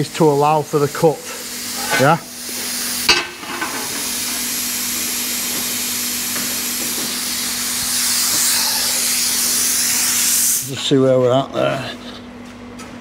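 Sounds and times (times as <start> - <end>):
plasma cutter hissing: 1.0 - 10.7.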